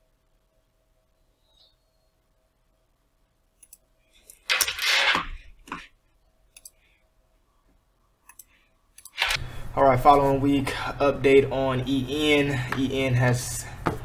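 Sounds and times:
computer mouse clicking: 0:03.6 - 0:04.6, 0:06.5 - 0:06.8, 0:08.2 - 0:09.4.

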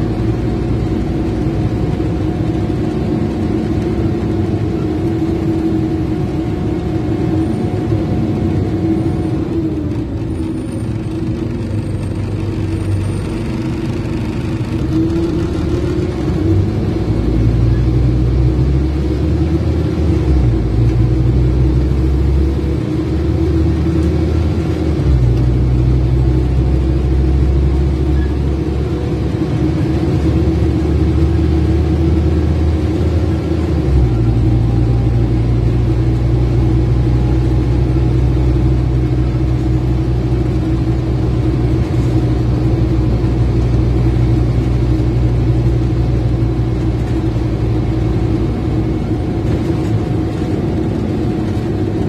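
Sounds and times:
bus diesel engine droning: 0:00.0 - 0:52.0
road noise: 0:00.0 - 0:52.0.

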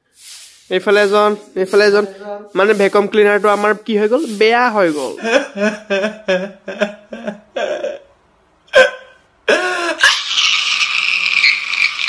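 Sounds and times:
man sobbing: 0:05.2 - 0:10.2.

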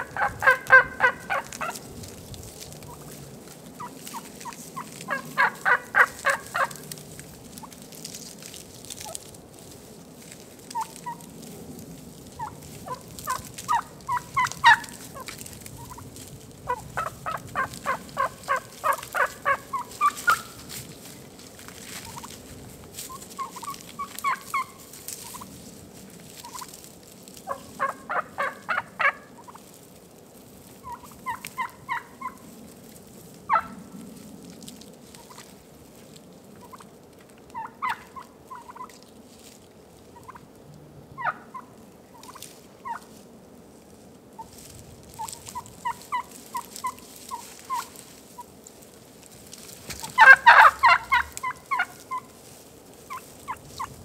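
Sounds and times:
wild turkeys calling: 0:00.0 - 0:07.9, 0:10.2 - 0:11.4, 0:12.2 - 0:20.8, 0:21.8 - 0:25.6, 0:26.3 - 0:29.8, 0:30.6 - 0:32.5, 0:33.4 - 0:33.8, 0:35.1 - 0:35.5, 0:36.5 - 0:39.0, 0:40.1 - 0:40.5, 0:41.2 - 0:43.2, 0:44.4 - 0:48.5, 0:49.7 - 0:54.0.

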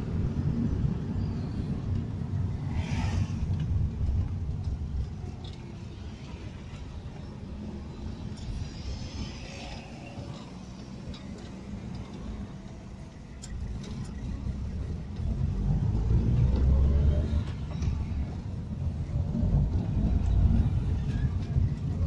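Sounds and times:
car engine and road noise: 0:00.0 - 0:22.0.

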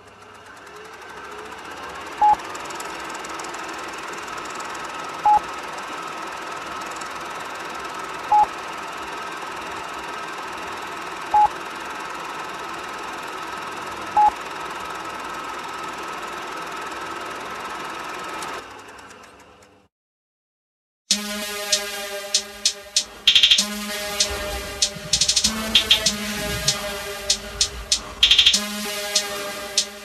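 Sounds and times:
buzzing electronic hum: 0:21.1 - 0:30.0
short loud beeps: 0:21.1 - 0:30.0.

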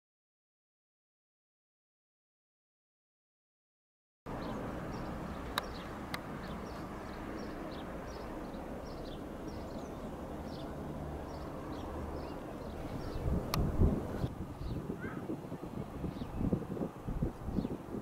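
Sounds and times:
small birds chirping: 0:04.3 - 0:18.0
steady low rumble: 0:04.4 - 0:14.8.

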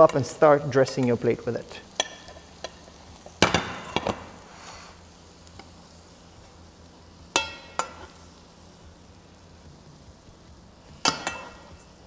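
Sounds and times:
metal spoon knocking on pan: 0:07.3 - 0:08.0.

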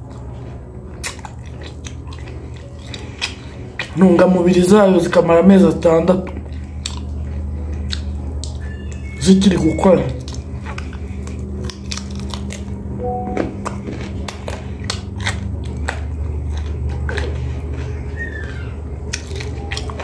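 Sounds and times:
chewing grilled chicken: 0:00.0 - 0:20.0
gristle crunches and mouth clicks: 0:01.0 - 0:04.0, 0:06.5 - 0:09.1, 0:10.1 - 0:12.8, 0:13.7 - 0:18.0, 0:19.0 - 0:20.0
steady low hum: 0:10.2 - 0:18.2.

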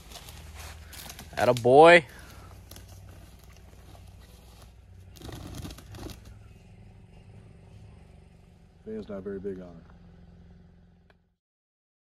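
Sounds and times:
footsteps crunching dry leaves: 0:00.0 - 0:06.3
faint low hum: 0:02.0 - 0:11.3.

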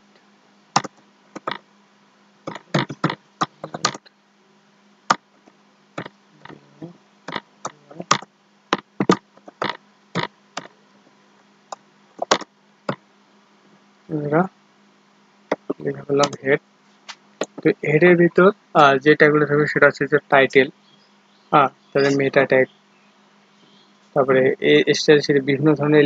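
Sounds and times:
faint low hum: 0:00.0 - 0:26.0
keyboard typing clicks: 0:00.8 - 0:01.6, 0:02.5 - 0:04.1, 0:07.3 - 0:10.7, 0:12.2 - 0:13.0, 0:17.4 - 0:17.6.

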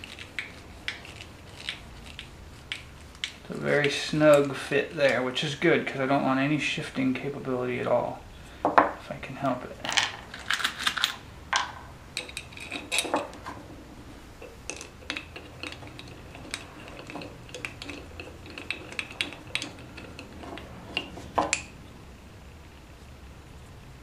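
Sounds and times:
metal screws clicking and clinking: 0:00.0 - 0:05.2, 0:09.9 - 0:13.6, 0:14.4 - 0:21.8.

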